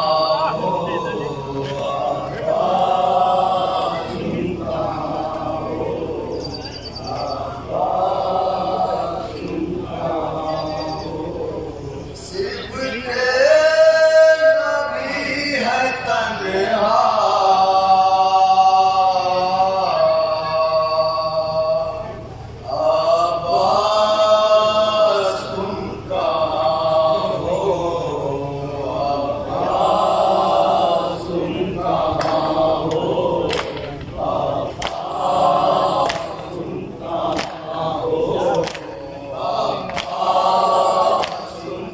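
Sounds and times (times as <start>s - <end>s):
men chanting in unison: 0.0s - 41.9s
sharp slaps: 32.2s - 34.0s, 34.8s - 35.1s, 36.0s - 36.4s, 37.3s - 37.6s, 38.5s - 38.9s, 39.8s - 40.2s, 41.2s - 41.5s.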